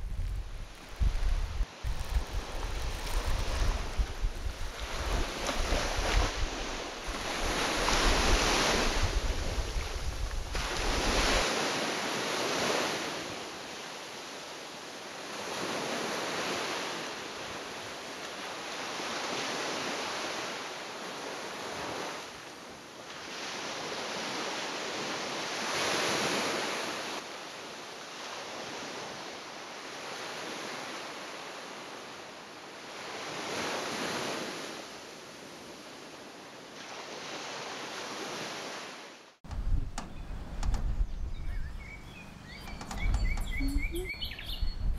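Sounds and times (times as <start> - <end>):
wind buffeting microphone: 0.0 - 11.4, 39.4 - 44.9
sea waves washing on shore: 0.0 - 41.0.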